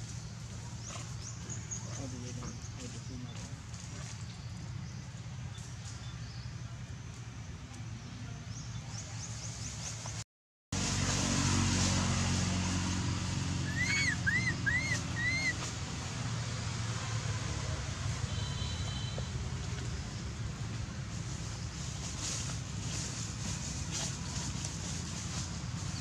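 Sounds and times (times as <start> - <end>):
infant monkey squeaky calls: 13.6 - 15.7.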